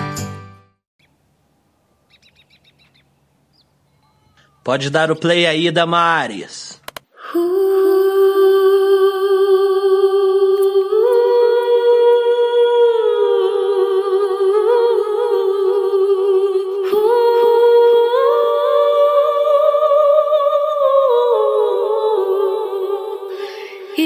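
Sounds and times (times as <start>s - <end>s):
sharp click: 6.8s - 7.1s
person humming a slow melody: 7.2s - 24.0s.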